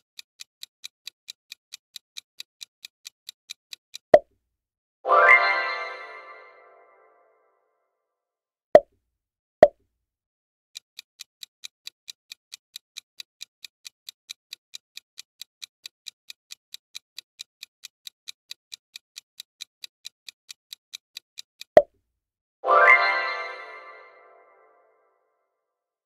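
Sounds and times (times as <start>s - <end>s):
rapid clock ticks: 0.0s - 4.2s, 10.7s - 21.9s
bright chime: 5.1s - 7.0s, 22.7s - 24.7s.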